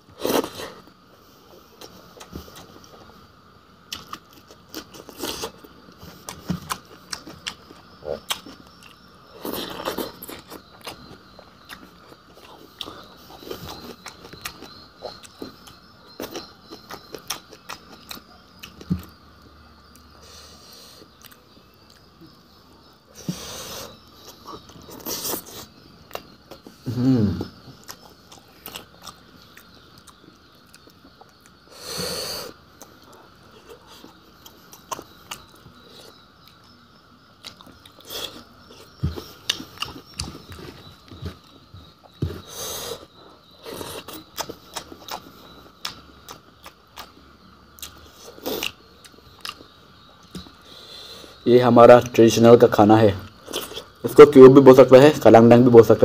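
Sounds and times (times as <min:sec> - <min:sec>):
person humming: 0:26.8 - 0:27.5
person chewing and biting: 0:27.7 - 0:31.6, 0:43.6 - 0:47.2, 0:47.8 - 0:49.6.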